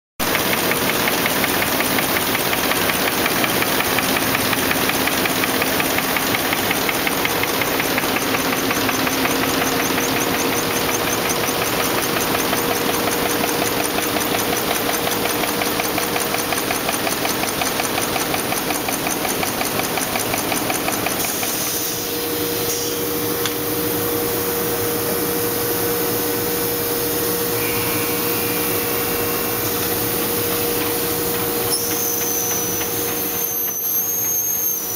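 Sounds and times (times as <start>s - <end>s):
machine clattering: 0.2s - 21.7s
machine hum: 0.2s - 34.9s.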